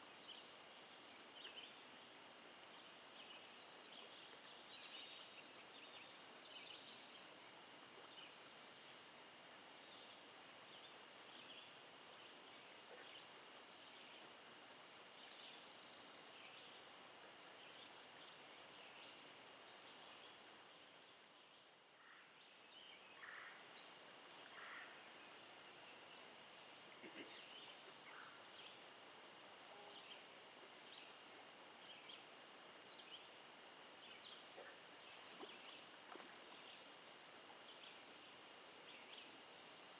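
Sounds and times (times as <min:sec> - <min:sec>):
faint bird calls: 0:23.1 - 0:23.8, 0:24.4 - 0:25.2.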